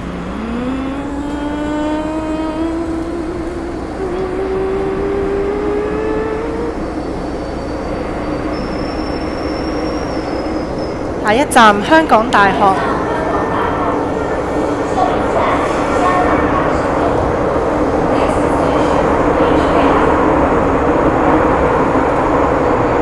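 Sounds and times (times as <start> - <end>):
train running rumble: 0.0 - 23.0
train traction motors whining: 0.0 - 23.0
faint high whistle: 6.7 - 11.0.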